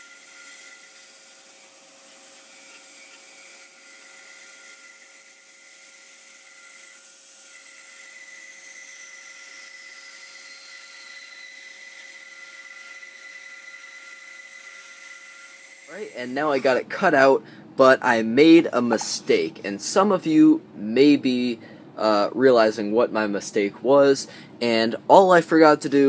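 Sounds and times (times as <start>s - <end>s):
bandsaw cutting wood: 0.0s - 16.8s.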